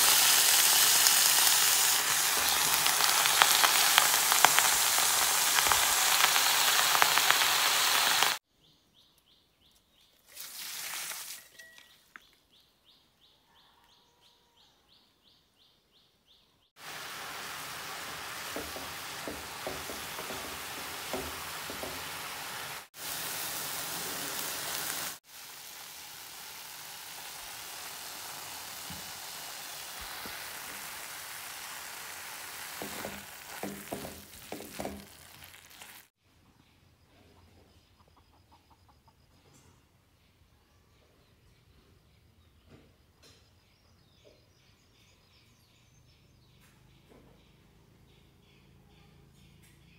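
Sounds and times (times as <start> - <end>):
leaves sizzling in a pan: 0.0 - 8.4, 10.2 - 11.6, 16.8 - 36.2
spatula scraping a pan: 32.5 - 36.1.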